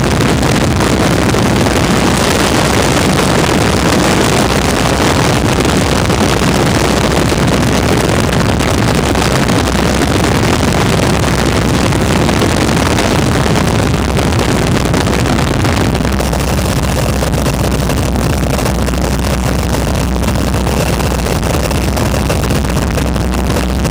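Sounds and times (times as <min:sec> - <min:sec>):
biplane engine drone: 0:00.0 - 0:23.9
rushing wind: 0:00.0 - 0:23.9.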